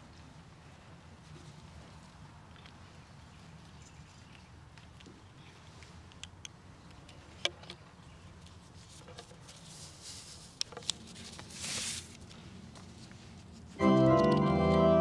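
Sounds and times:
short rustle: 0:08.4 - 0:13.9.

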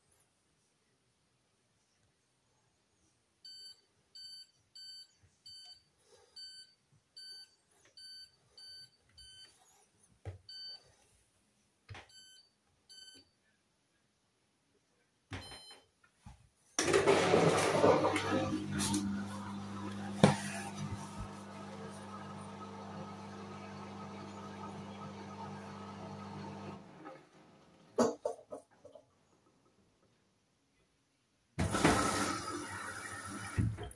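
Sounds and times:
washing machine hum: 0:16.8 - 0:28.0, 0:31.6 - 0:33.9.

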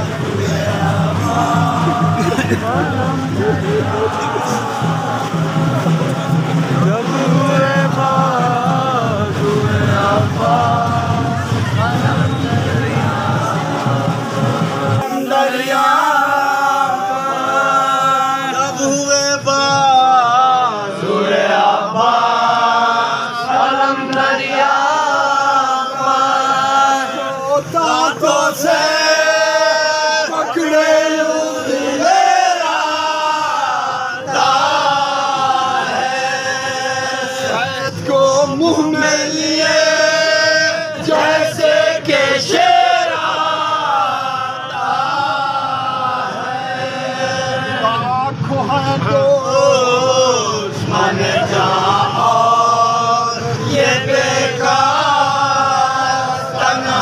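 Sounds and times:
men chanting together: 0:00.0 - 0:57.0.

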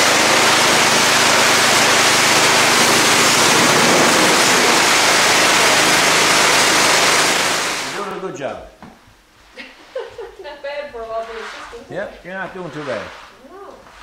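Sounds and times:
pressure washer spraying concrete: 0:00.0 - 0:08.1
pump and motor humming: 0:00.0 - 0:08.2.

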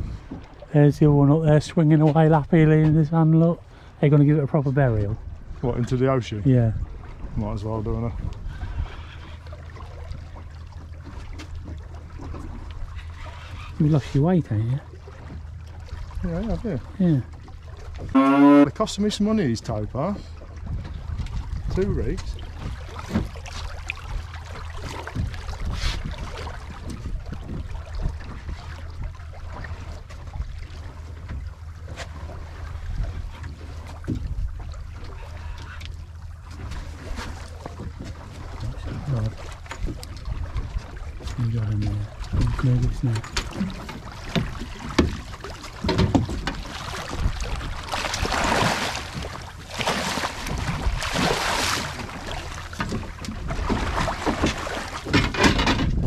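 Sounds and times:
wind rumble on microphone: 0:00.0 - 0:03.2, 0:04.3 - 0:09.4, 0:20.5 - 0:35.6, 0:36.5 - 0:49.4, 0:50.4 - 0:56.0
water lapping against boat hull: 0:00.0 - 0:56.0
small splashes and knocks: 0:09.2 - 0:18.2, 0:20.6 - 0:56.0
gear knocking on hull: 0:36.2 - 0:48.3, 0:51.8 - 0:56.0
fish thrashing in water: 0:42.0 - 0:56.0
rushes of wind noise: 0:55.3 - 0:56.0.

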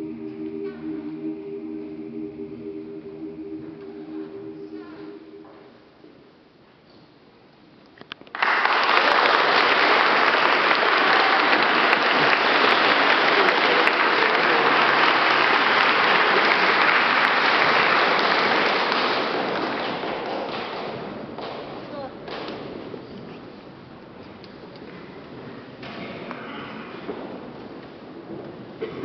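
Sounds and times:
audience clapping: 0:08.2 - 0:21.7.

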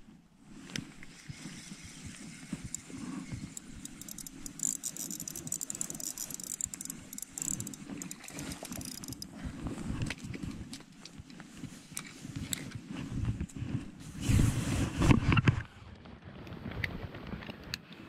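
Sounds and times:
light handling rustle: 0:00.5 - 0:15.6
fishing reel ticking: 0:01.1 - 0:09.4.

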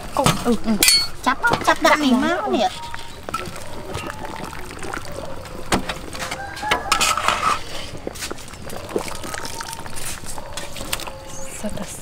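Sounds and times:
metal clinks against a pot: 0:00.2 - 0:02.0
chickens clucking: 0:01.4 - 0:11.9.

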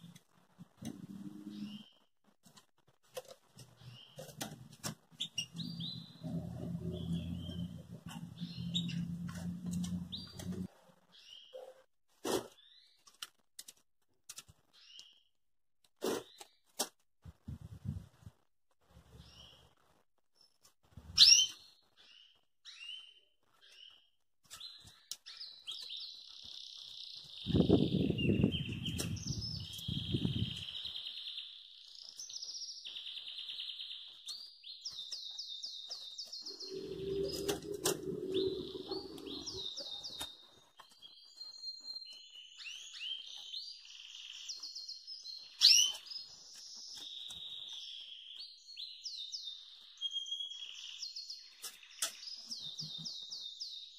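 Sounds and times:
bird singing and twittering: 0:01.0 - 0:02.0, 0:05.1 - 0:11.6, 0:21.1 - 0:53.9
low rumble: 0:05.5 - 0:10.7, 0:36.5 - 0:39.8.

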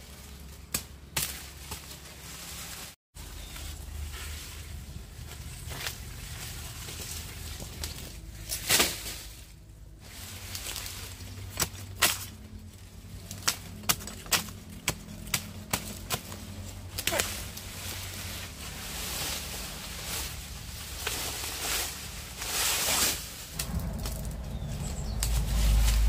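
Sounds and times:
sugarcane snapping and cracking: 0:00.2 - 0:02.1, 0:05.2 - 0:09.5, 0:10.3 - 0:18.2, 0:19.6 - 0:24.4
steady low hum: 0:03.2 - 0:26.0.

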